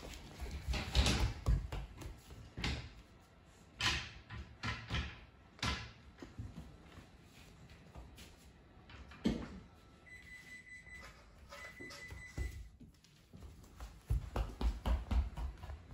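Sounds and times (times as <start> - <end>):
footsteps on wooden floor: 12.1 - 15.9.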